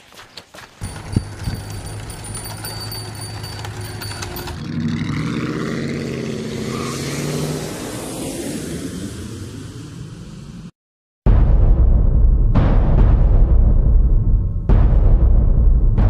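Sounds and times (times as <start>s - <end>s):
thin high ringing tones: 0.8s - 4.7s.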